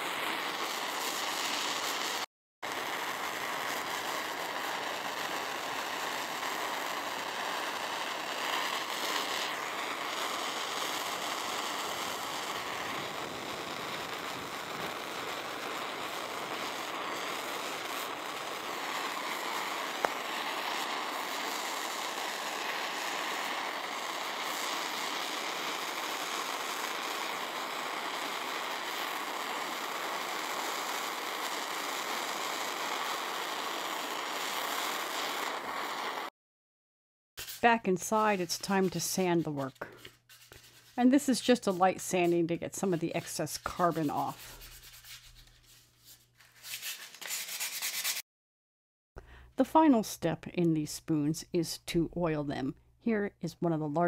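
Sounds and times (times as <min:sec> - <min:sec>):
propane torch hissing: 0:00.0 - 0:36.3, 0:37.6 - 0:39.9, 0:41.1 - 0:44.8.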